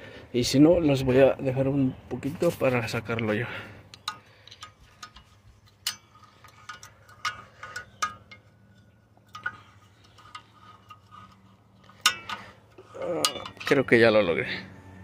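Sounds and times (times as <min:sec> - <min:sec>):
screwdriver clinking on metal: 0:04.0 - 0:14.0.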